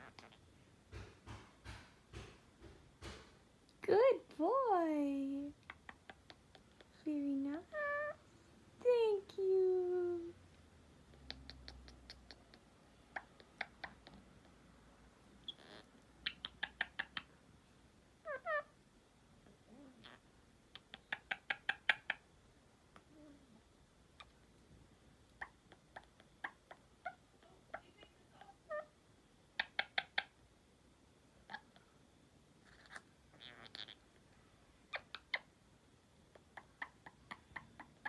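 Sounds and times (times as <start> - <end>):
bird clicking and chirping: 5.6 - 6.9, 11.1 - 14.2, 15.5 - 17.3, 20.7 - 22.2.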